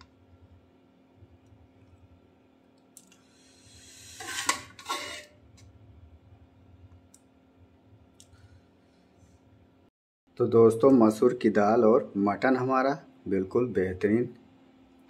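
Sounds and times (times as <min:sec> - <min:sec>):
metal ladle scraping pot: 0:03.6 - 0:05.6.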